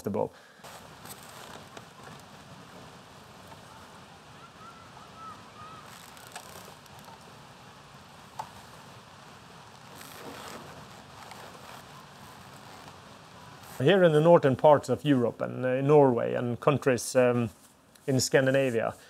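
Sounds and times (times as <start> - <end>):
light hiss: 0.0 - 19.0
faint high chirps: 3.6 - 6.7.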